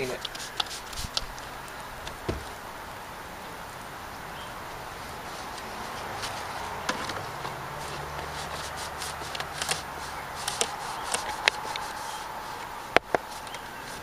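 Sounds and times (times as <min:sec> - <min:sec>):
rag scrubbing plastic panel: 0:05.3 - 0:14.0.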